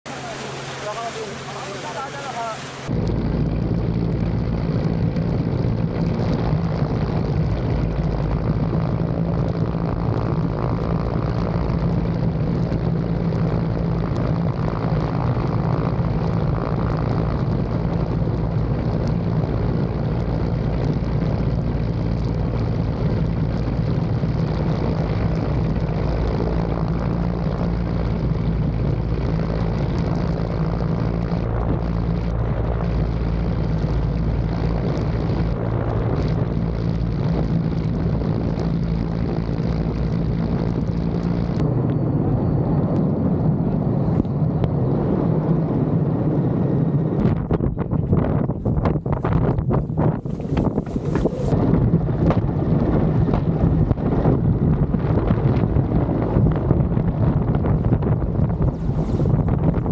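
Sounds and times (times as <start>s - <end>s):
helicopter engines and rotor: 0.1s - 5.5s.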